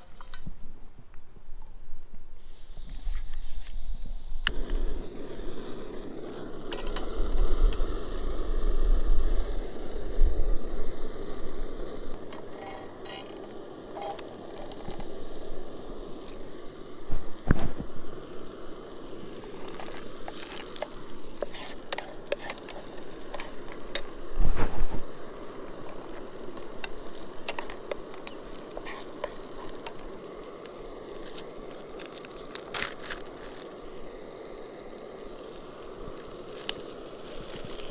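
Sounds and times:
camp stove burner running: 2.4s - 37.9s
onions sizzling in oil: 3.8s - 37.9s
wooden spatula stirring: 19.4s - 24.1s, 25.8s - 33.7s.

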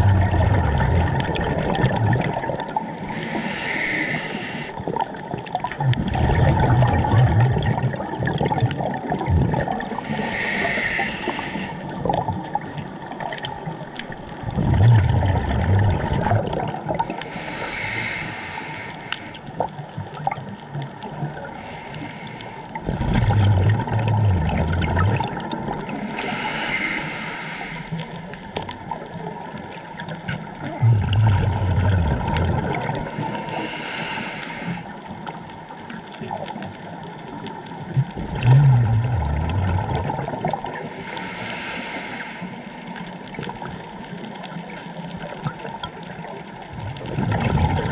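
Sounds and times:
bubbling exhale: 0.0s - 12.5s, 14.4s - 19.5s, 21.4s - 28.6s, 30.6s - 35.1s, 38.0s - 43.6s, 46.7s - 47.9s
hissing regulator inhale: 2.8s - 4.8s, 9.8s - 12.0s, 17.0s - 19.5s, 21.5s - 22.8s, 25.8s - 28.5s, 32.9s - 35.1s, 40.8s - 43.2s.

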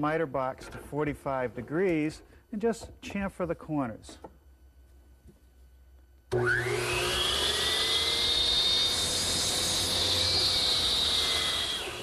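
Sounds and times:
miter saw motor running: 6.3s - 12.0s.

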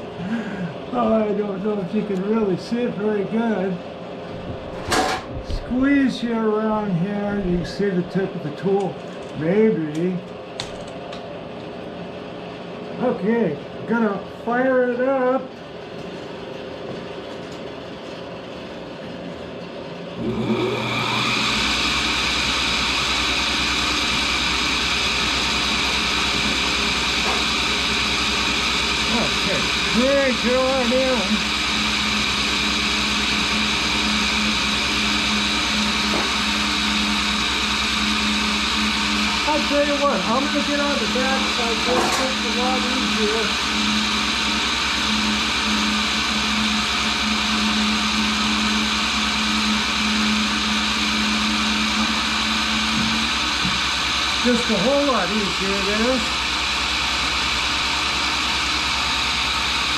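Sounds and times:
grinder motor and wheel spinning: 20.2s - 59.9s.

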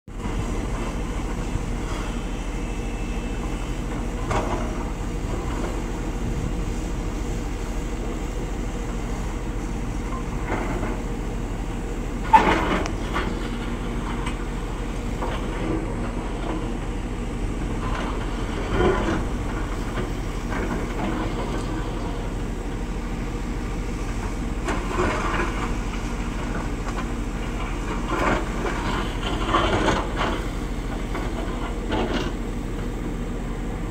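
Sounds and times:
excavator diesel engine under load: 0.1s - 33.9s.

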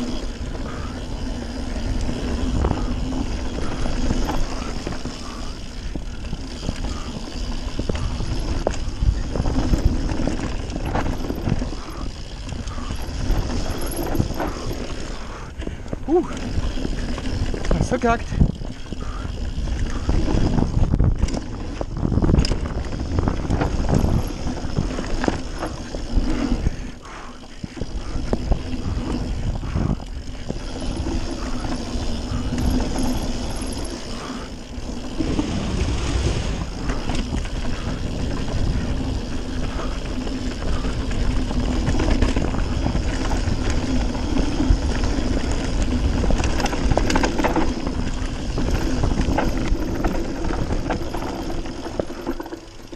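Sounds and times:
tyres rolling over dirt: 0.0s - 27.0s, 27.6s - 52.9s
bike knocks and rattles: 0.0s - 52.9s
wind on microphone: 15.8s - 27.0s, 27.6s - 33.4s.

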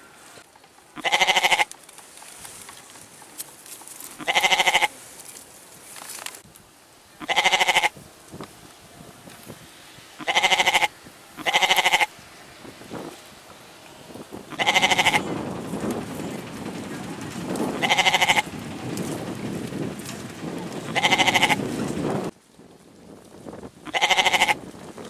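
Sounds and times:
goats bleating: 1.0s - 1.7s, 4.2s - 4.9s, 7.2s - 8.0s, 10.2s - 12.1s, 14.5s - 15.3s, 17.8s - 18.5s, 20.9s - 21.6s, 23.8s - 24.6s.

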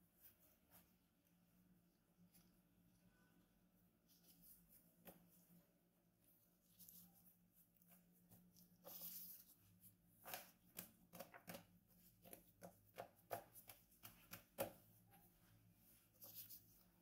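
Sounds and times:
hands patting dough on board: 10.2s - 15.2s.

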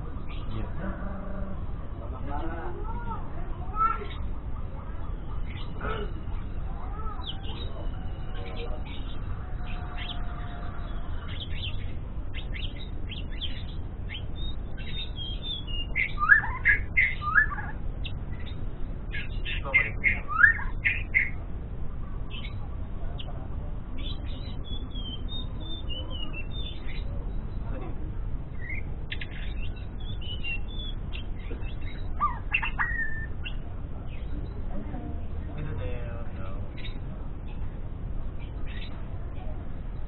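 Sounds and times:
bird chirps and whistled song: 7.2s - 21.4s, 24.0s - 27.6s, 28.6s - 34.6s.

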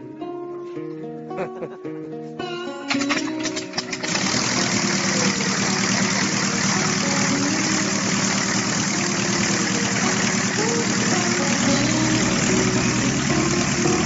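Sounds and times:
propeller whirring: 3.0s - 14.0s
small aircraft engine idling: 3.0s - 14.0s.

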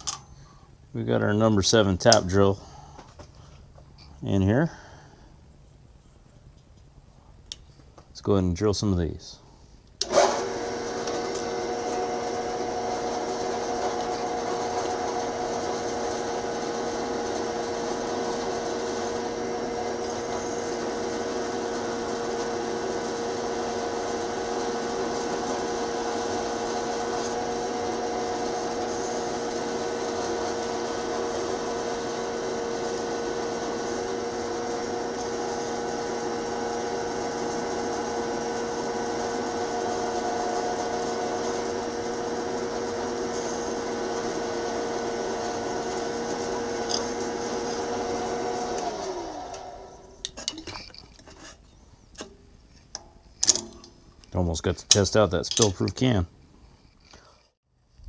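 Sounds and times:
drill press boring into steel: 10.0s - 51.1s
motor hum: 10.0s - 51.1s.

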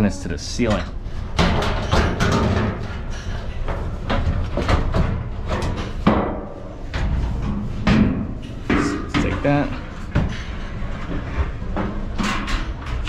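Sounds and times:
sheet metal panels knocking: 1.3s - 10.6s.

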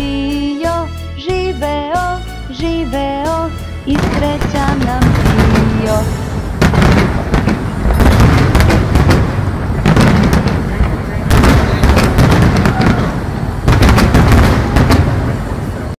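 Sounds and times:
fireworks banging and crackling: 3.9s - 16.0s.

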